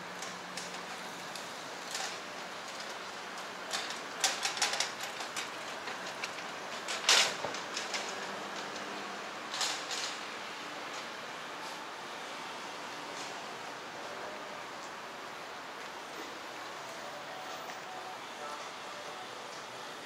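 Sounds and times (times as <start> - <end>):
street noise: 0.0 - 20.0
hand truck wheels rattling: 1.8 - 10.2.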